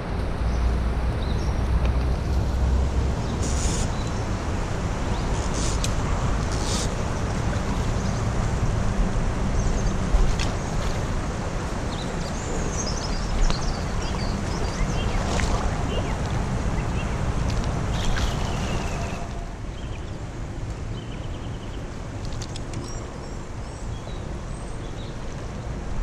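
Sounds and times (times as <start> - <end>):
river water rushing: 0.0 - 26.0
wind buffeting microphone: 0.0 - 26.0
net splashing into water: 14.3 - 16.5.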